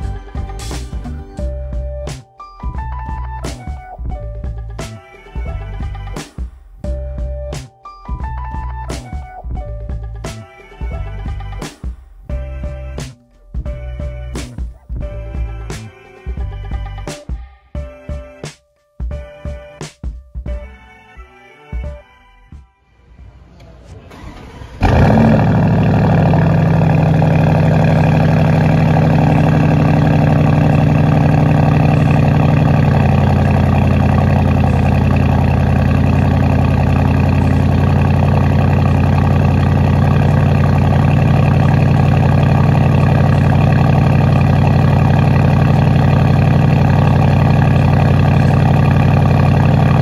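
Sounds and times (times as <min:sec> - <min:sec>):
car engine starting and idling: 0:23.6 - 0:50.0.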